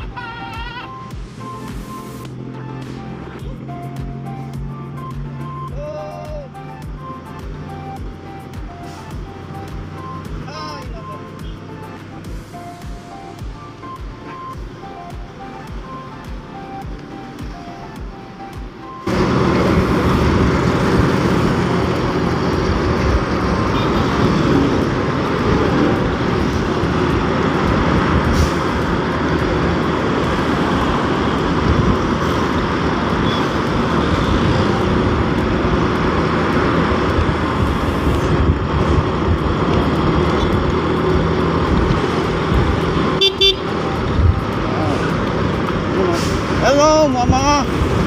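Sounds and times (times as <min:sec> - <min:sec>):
highway traffic: 0:00.0 - 0:48.0
wind rushing over microphone: 0:19.1 - 0:43.2, 0:44.0 - 0:48.0.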